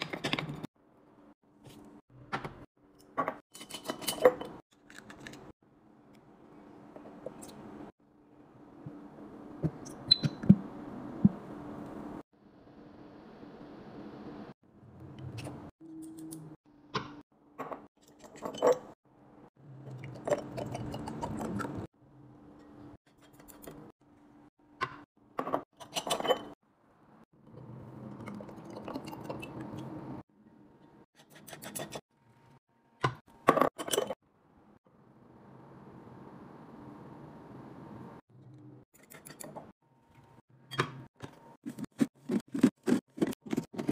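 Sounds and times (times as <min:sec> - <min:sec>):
glass jars clinking: 0:17.7 - 0:19.0.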